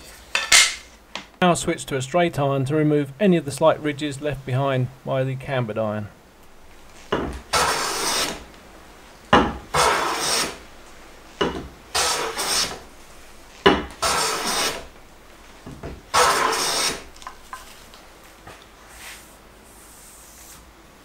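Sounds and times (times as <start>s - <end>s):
hand plane cutting hiss: 7.0s - 8.5s, 9.7s - 10.6s, 11.4s - 12.9s, 13.7s - 14.9s, 16.1s - 17.5s, 18.5s - 20.8s
hand plane knocking on board: 11.4s - 11.7s.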